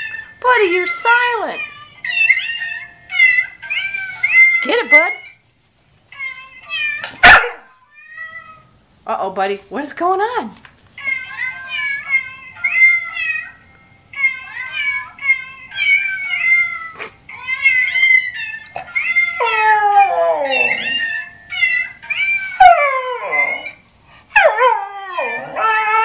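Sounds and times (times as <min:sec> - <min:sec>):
dog howling: 0:18.2 - 0:21.2, 0:22.2 - 0:23.8, 0:24.4 - 0:26.0.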